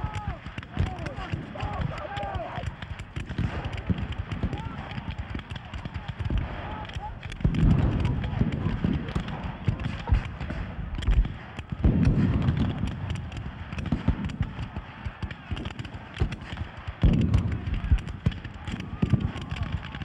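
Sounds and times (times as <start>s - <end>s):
men shouting: 0.0s - 2.7s
heavy blasts: 0.0s - 20.0s
muskets firing: 0.0s - 20.0s.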